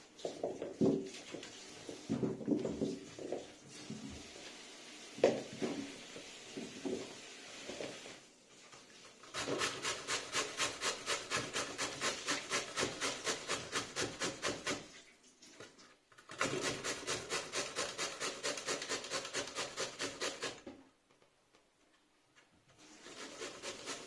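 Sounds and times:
pumpkin grated on a hand grater: 9.2s - 15.0s, 16.3s - 20.7s, 22.8s - 24.0s.

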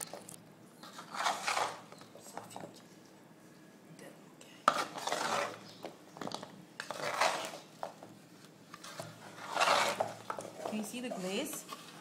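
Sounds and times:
spatula scraping metal pan: 1.0s - 1.9s, 4.7s - 5.6s, 6.8s - 7.7s, 8.9s - 11.2s.

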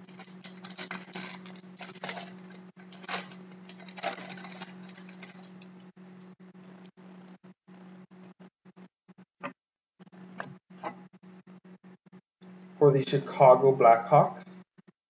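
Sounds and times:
wrapper tearing and crinkling: 0.0s - 5.8s.

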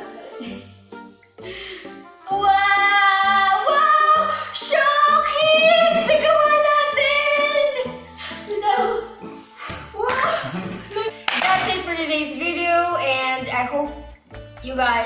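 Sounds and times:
song with high singing voice: 1.5s - 12.6s.

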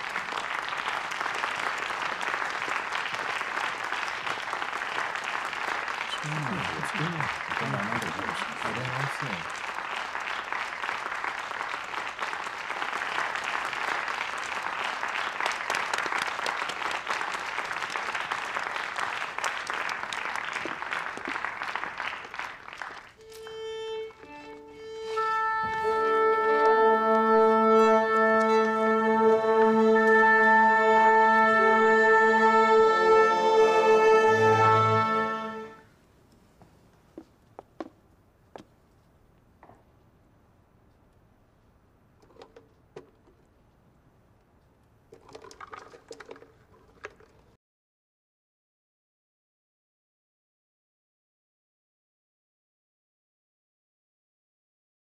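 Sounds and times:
audience applauding: 0.0s - 35.8s
orchestra strings tuning: 23.2s - 35.8s.

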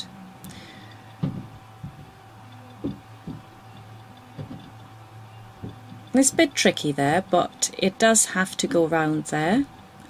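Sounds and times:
low hum: 0.0s - 10.0s
soft knocks on tabletop: 1.2s - 2.1s, 2.8s - 3.5s, 4.4s - 4.7s.

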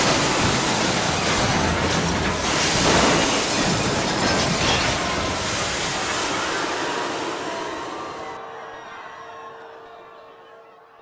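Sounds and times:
train rumbling: 0.0s - 8.4s.

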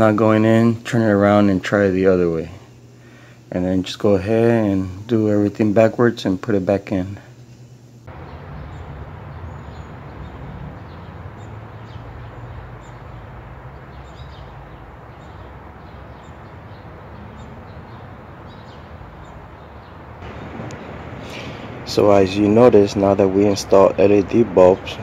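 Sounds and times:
faint bird chirps: 7.2s - 20.0s
low outdoor rumble: 7.2s - 25.0s.

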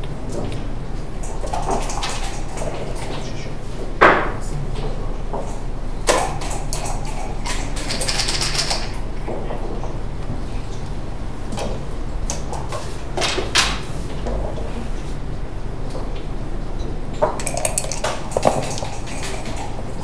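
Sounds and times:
steady low hum: 0.0s - 20.0s
game pieces clicking on a board: 7.5s - 8.9s.

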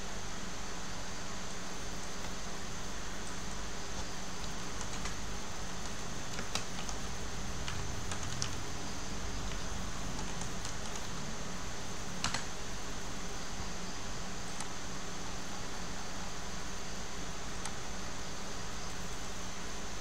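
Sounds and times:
steady hiss and hum: 0.0s - 20.0s
keyboard keystrokes: 4.4s - 5.2s, 5.8s - 8.6s, 9.5s - 11.1s, 12.2s - 12.6s.

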